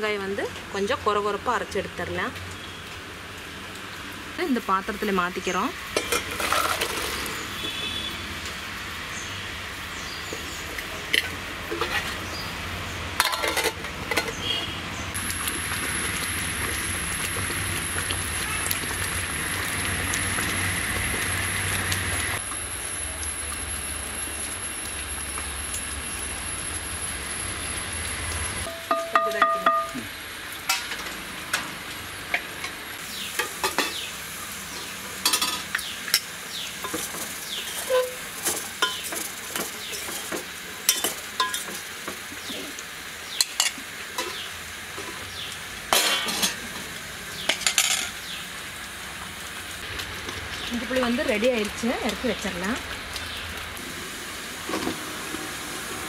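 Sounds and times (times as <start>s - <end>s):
liquid boiling in a pot: 2.5s - 56.0s
metal ladle clinking in steel bowl: 28.7s - 30.0s.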